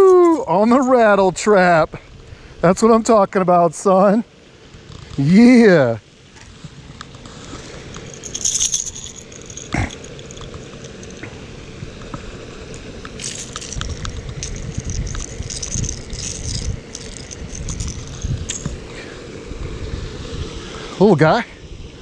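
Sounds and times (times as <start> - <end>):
handling rumble: 4.8 - 19.2
fishing lure rattles clattering: 7.8 - 11.3, 12.8 - 18.8.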